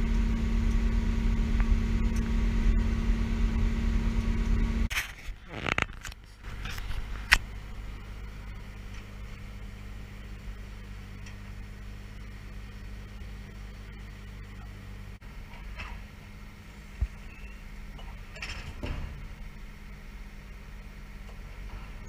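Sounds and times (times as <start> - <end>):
train machinery droning: 0.0 - 4.9.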